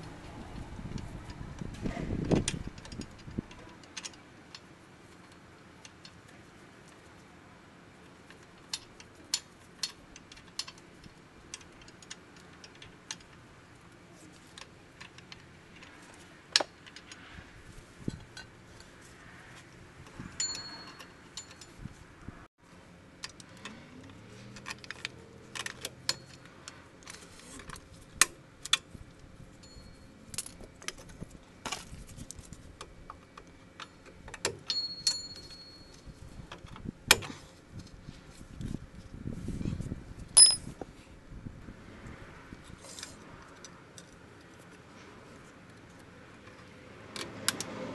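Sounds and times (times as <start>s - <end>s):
metallic clicks of brake parts: 0.9s - 6.4s, 8.3s - 13.5s, 20.0s - 21.8s.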